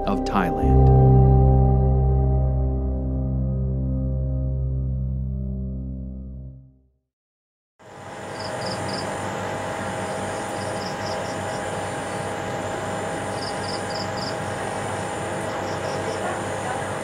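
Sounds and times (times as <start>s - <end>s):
room hum and hiss: 7.9s - 17.0s.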